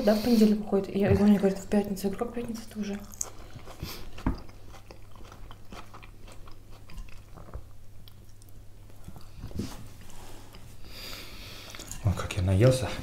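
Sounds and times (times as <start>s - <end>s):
chewing and crunching salad: 1.4s - 9.6s, 11.6s - 12.7s.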